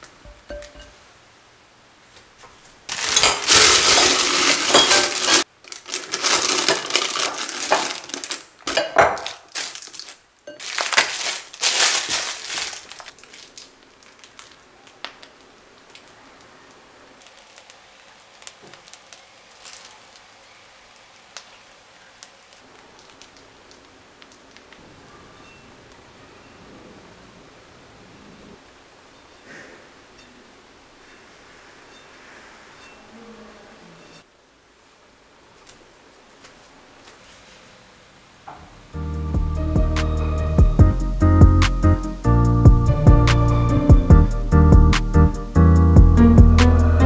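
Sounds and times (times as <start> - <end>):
piping bag crinkling: 2.9 - 16.2, 17.2 - 24.7.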